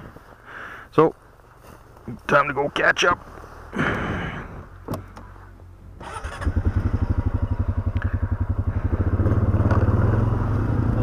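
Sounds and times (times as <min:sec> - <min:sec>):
single-cylinder engine running: 0:06.0 - 0:11.0.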